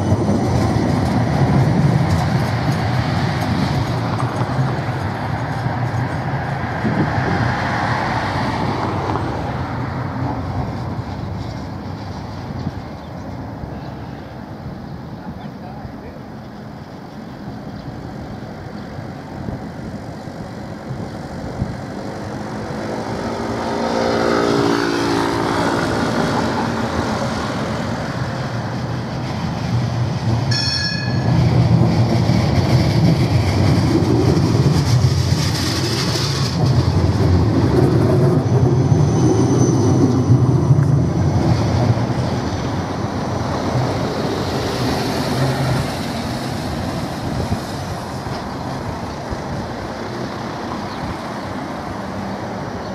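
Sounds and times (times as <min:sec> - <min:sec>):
tram rumbling past: 0:00.0 - 0:52.9
high-pitched tram bell ringing: 0:30.5 - 0:31.8.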